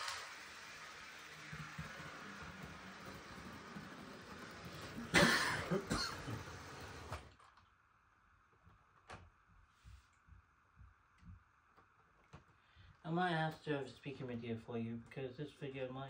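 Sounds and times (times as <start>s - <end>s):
model train whirring: 0.0s - 7.6s
person coughing: 5.1s - 6.5s.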